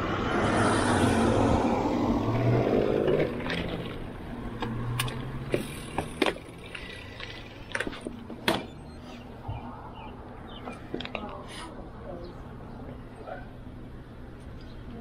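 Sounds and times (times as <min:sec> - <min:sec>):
bicycle rolling on pavement: 0:02.0 - 0:08.4
bike clicks and rattles: 0:03.0 - 0:08.7.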